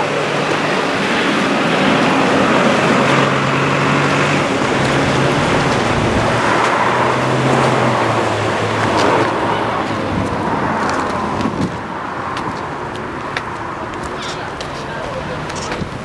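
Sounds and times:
low engine hum: 0.0 - 16.0
passing cars: 0.0 - 16.0.

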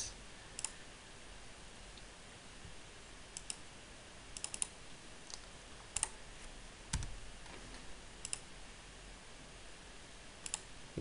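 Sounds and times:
computer clicks: 0.5 - 0.8, 3.3 - 3.6, 4.3 - 6.1, 8.2 - 8.5, 10.4 - 10.7.

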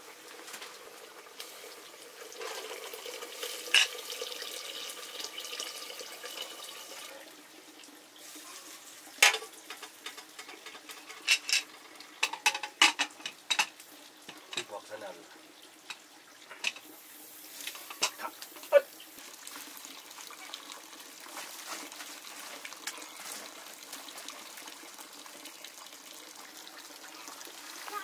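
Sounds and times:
liquid hissing in pot: 0.0 - 7.2, 13.0 - 28.0
metal utensils clinking against pot: 3.7 - 4.0, 9.2 - 14.9, 15.9 - 16.9, 17.6 - 18.8.

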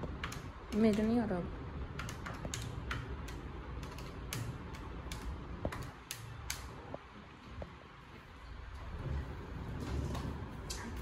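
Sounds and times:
calculator keys clicking: 0.1 - 1.3, 1.9 - 6.7.

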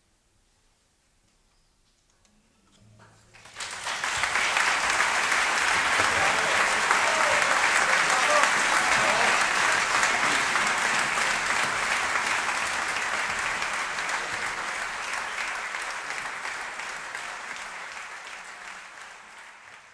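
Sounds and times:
audience applauding: 3.3 - 19.9.

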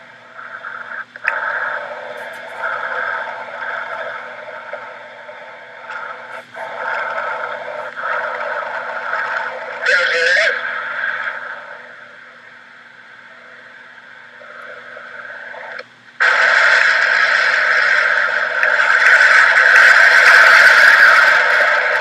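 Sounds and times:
faint low hum: 0.0 - 22.0.

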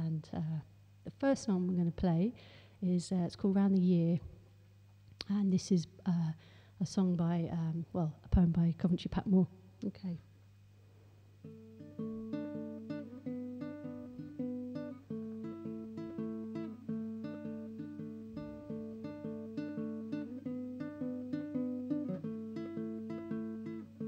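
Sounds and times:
plucked string notes: 11.4 - 24.0.

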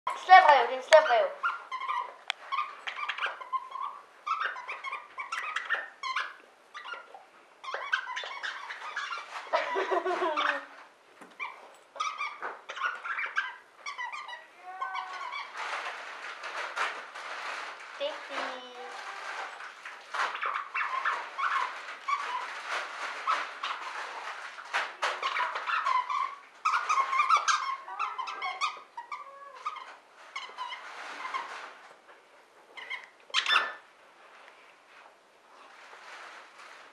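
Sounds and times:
dog toy squeaking: 0.1 - 10.7, 11.4 - 15.6, 32.8 - 33.8.

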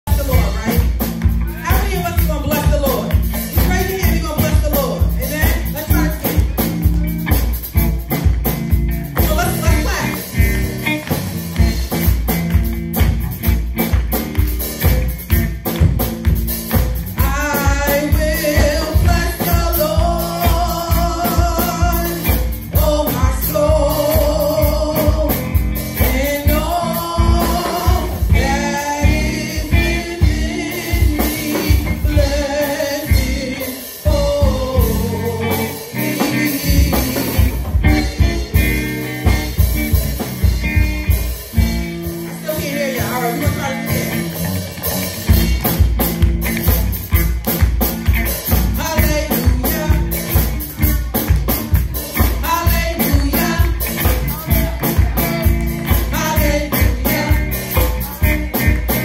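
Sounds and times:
instrumental accompaniment with bass: 0.0 - 59.0
women singing gospel: 17.2 - 38.4, 52.2 - 59.0.

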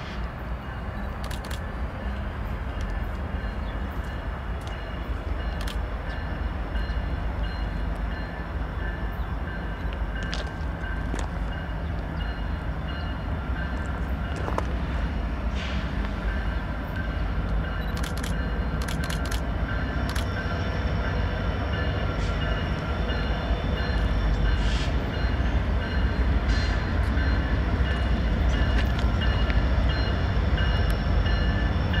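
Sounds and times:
freight train rumbling past: 0.0 - 32.0
sharp clicks: 17.9 - 19.5.

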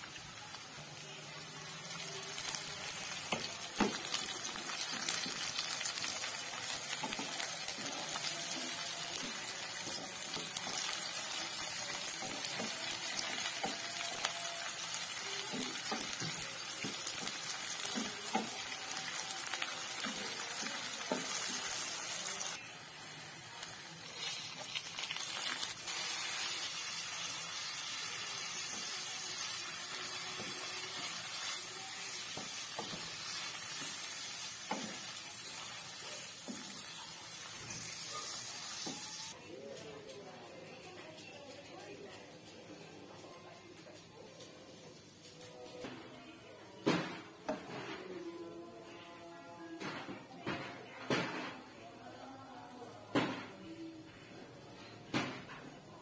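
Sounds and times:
food sizzling in hot oil: 0.0 - 39.4.

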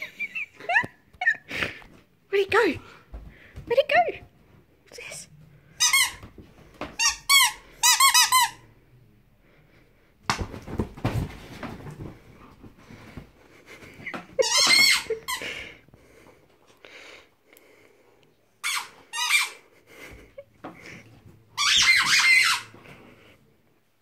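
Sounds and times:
squeaky toy squeaking: 5.8 - 6.2, 7.0 - 8.6, 14.4 - 15.4, 18.6 - 19.6, 21.6 - 22.7.

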